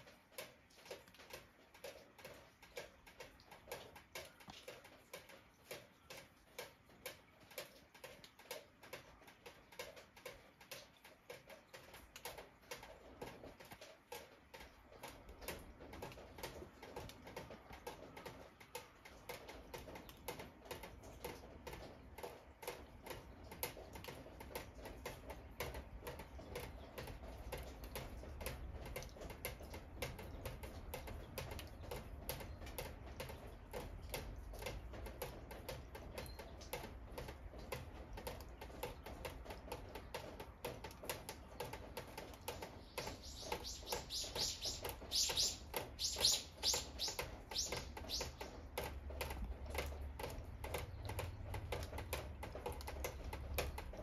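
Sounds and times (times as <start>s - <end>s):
rapid small clicks: 0.0s - 54.0s
birds chirping: 42.4s - 48.8s.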